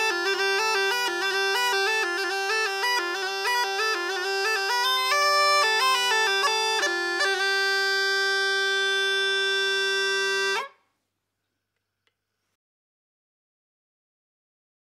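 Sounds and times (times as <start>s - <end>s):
bagpipe melody over drone: 0.0s - 10.8s.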